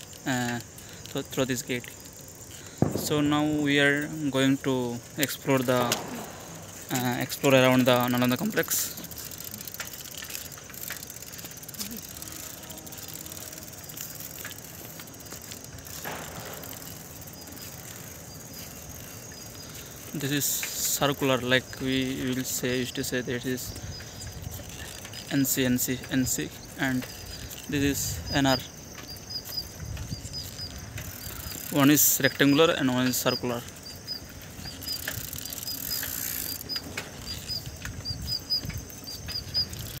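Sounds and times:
bicycle clicks and rattles: 0.0s - 40.0s
bicycle tyre and drivetrain noise: 0.0s - 40.0s
tyre and wind rumble: 23.1s - 32.3s, 33.7s - 40.0s.

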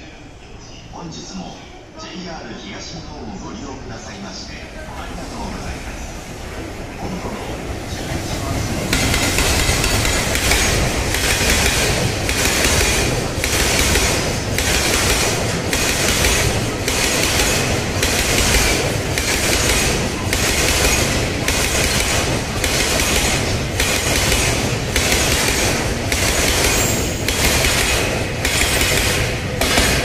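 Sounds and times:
freight train rumble: 0.0s - 30.0s
steel wheels clattering on rails: 7.4s - 30.0s.

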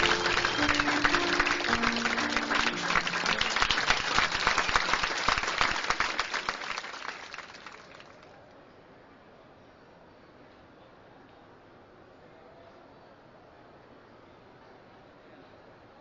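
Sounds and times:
band playing low notes: 0.0s - 4.1s
audience applause: 0.0s - 8.2s.

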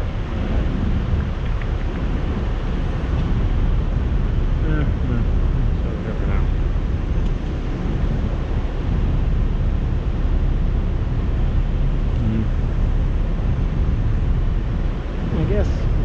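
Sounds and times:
road traffic: 0.0s - 16.0s
wind buffeting microphone: 0.0s - 16.0s.

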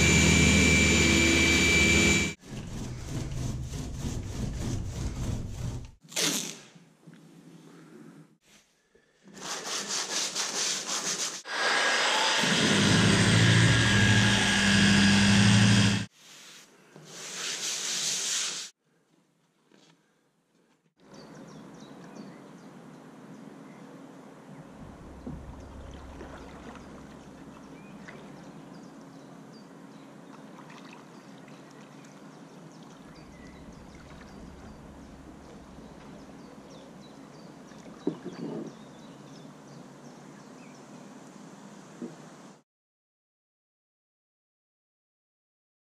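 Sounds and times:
orbital sander running: 0.0s - 2.4s, 11.5s - 16.1s
sharp knocks: 24.8s - 27.3s
water lapping: 24.8s - 28.5s, 30.3s - 36.4s.

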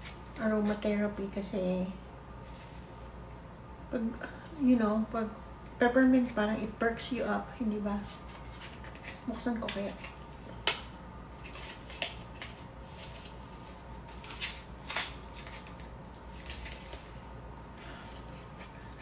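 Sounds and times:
packaging crackling and snapping: 14.0s - 17.0s.

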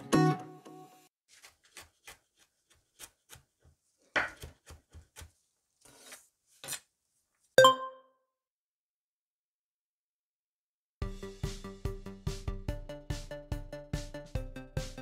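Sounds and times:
music: 0.0s - 1.1s, 11.0s - 15.0s
knife chopping on wooden board: 1.4s - 5.4s.

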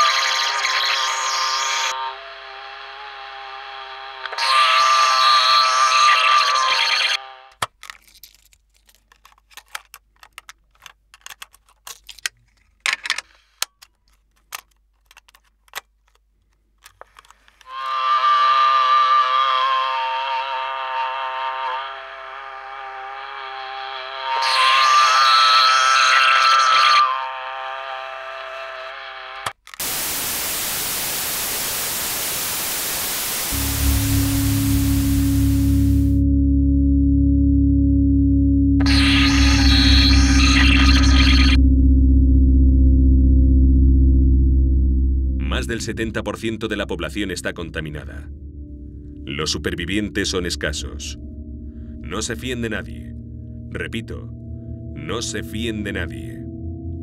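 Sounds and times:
plastic cases clicking on wooden table: 7.6s - 16.2s
television static hiss: 29.8s - 35.4s
low droning music tone: 33.4s - 57.0s.

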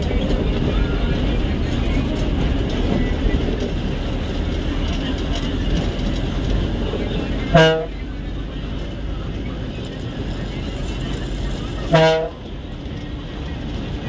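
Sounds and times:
bus engine and road noise: 0.0s - 14.0s
short horn toot: 7.6s - 7.9s, 11.9s - 12.4s.

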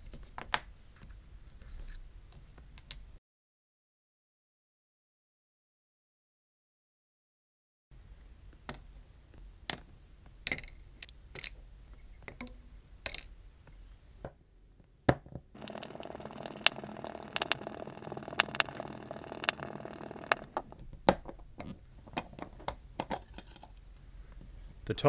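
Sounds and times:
continuous rasping: 15.6s - 20.9s.

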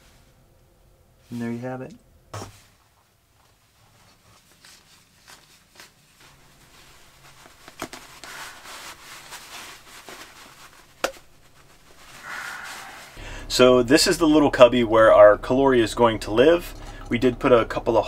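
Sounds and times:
rustling and scraping on tubing: 2.4s - 13.2s.

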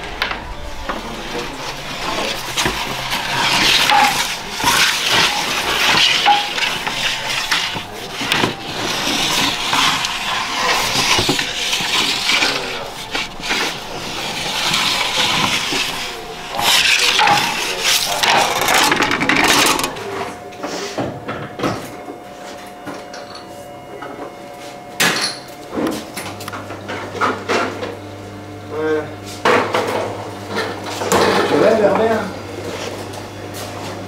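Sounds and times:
wooden peel scraping oven floor: 0.0s - 21.0s.

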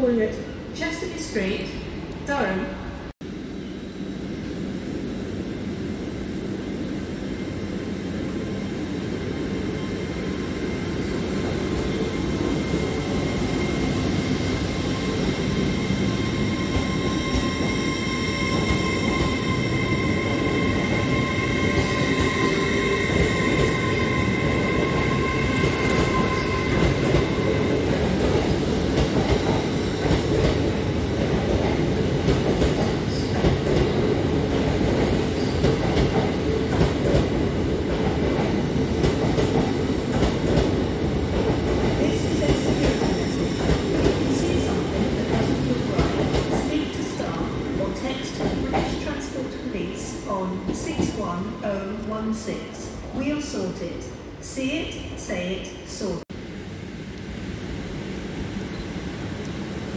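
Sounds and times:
electric train whine: 3.2s - 33.4s, 56.3s - 59.9s
train wheels rumbling and clicking: 20.8s - 49.3s.

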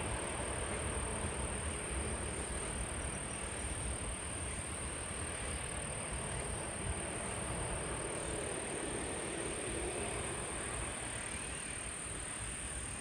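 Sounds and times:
distant engine hum: 0.0s - 13.0s.

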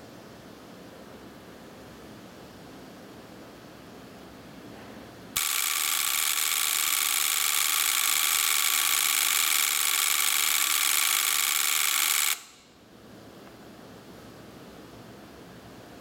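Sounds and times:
relays chattering buzz: 5.4s - 12.6s.

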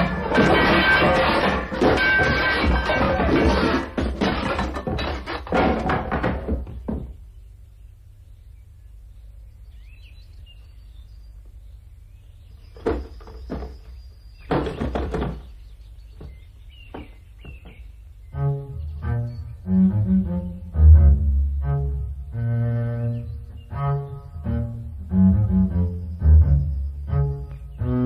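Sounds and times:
dull thuds and knocks: 0.0s - 7.3s, 12.8s - 18.0s.

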